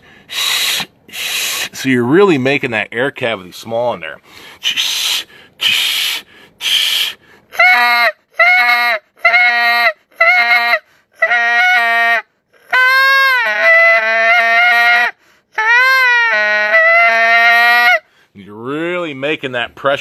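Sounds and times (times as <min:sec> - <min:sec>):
goose call blown: 0:00.3 - 0:01.8, 0:04.6 - 0:18.1.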